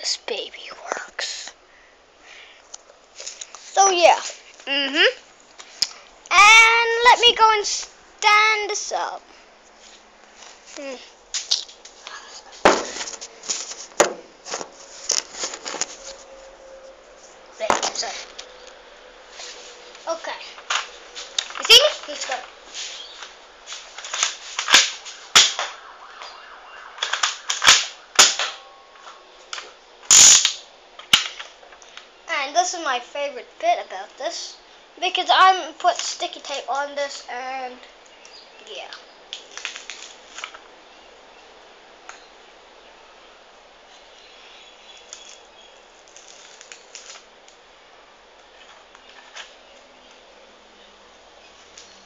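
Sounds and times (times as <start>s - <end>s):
steady hiss: 0.0s - 52.0s
toy gun plastic snaps: 27.0s - 28.6s.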